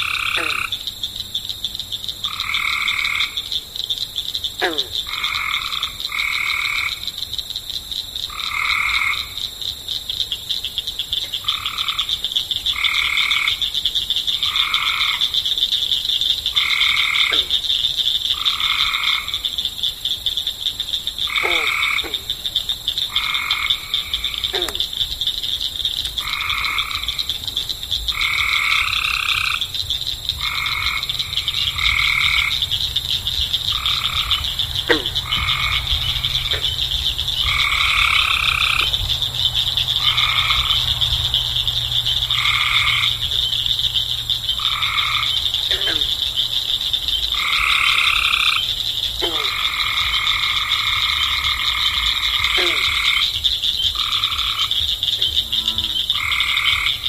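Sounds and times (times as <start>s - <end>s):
short falling frog calls: 0.0s - 7.2s, 10.3s - 57.0s
frog croaking: 0.0s - 57.0s.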